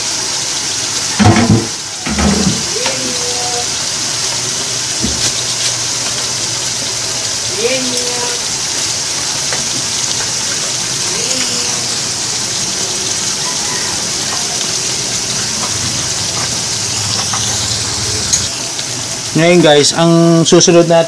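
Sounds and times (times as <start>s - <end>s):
meat sizzling in a pot: 0.0s - 21.0s.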